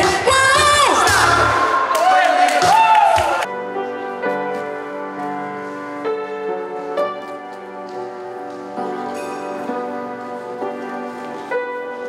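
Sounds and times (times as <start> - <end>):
soft piano music: 3.4 - 12.0.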